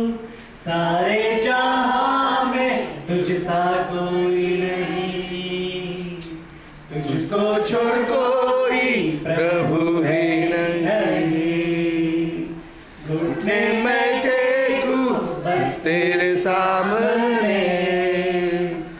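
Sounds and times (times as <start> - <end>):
congregation singing: 0.0 - 18.9
man singing into a microphone: 5.1 - 12.6.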